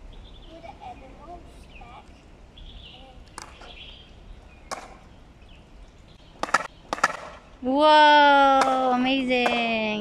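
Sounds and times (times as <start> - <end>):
skateboard clacking on paving stones: 3.2 - 3.8, 4.7 - 5.0, 6.4 - 7.4.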